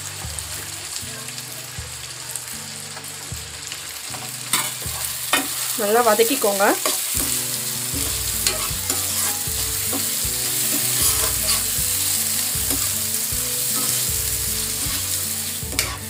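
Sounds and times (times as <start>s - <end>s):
vegetables sizzling in oil: 0.0s - 16.0s
spatula scraping pan: 6.8s - 16.0s
spatula clicking on pan: 15.7s - 16.0s.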